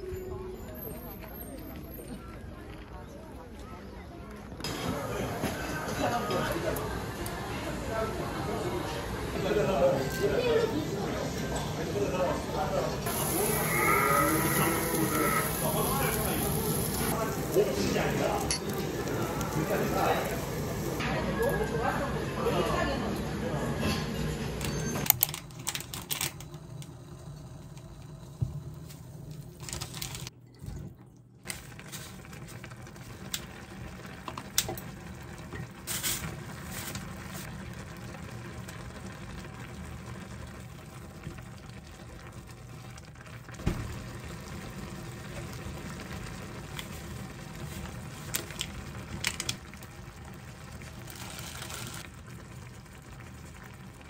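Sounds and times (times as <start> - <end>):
saucepan bubbling: 13.0 - 21.0, 26.5 - 54.0.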